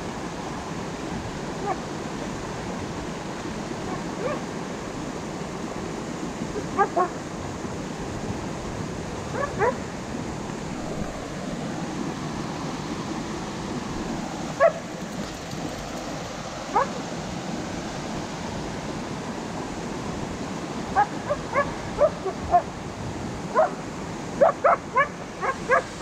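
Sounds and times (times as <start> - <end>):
creek and waterfall rushing: 0.0 - 26.0
dog yipping: 3.9 - 4.4, 9.4 - 9.8, 21.0 - 22.7, 24.4 - 26.0.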